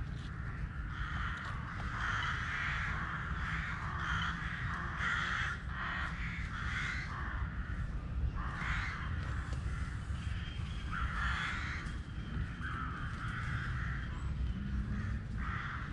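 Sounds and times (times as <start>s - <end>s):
harsh cawing animal calls: 0.3s - 15.9s
low rumble: 5.6s - 15.9s.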